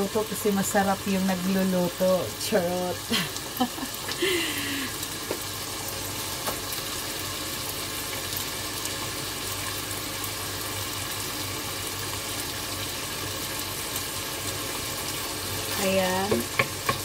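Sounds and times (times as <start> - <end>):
chicken sizzling in hot oil: 0.0 - 17.0.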